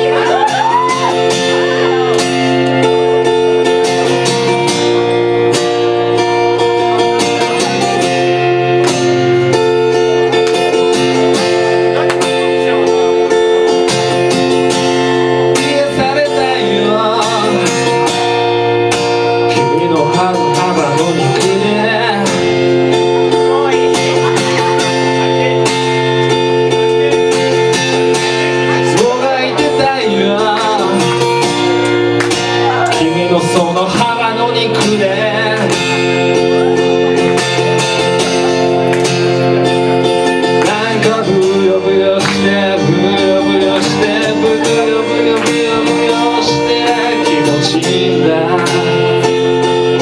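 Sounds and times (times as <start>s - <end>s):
guitar chords: 0.0s - 50.0s.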